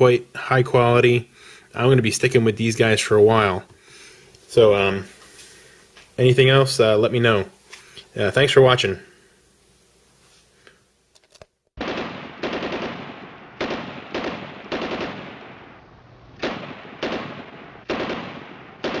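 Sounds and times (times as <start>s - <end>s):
gunshots echoing: 11.8s - 19.0s.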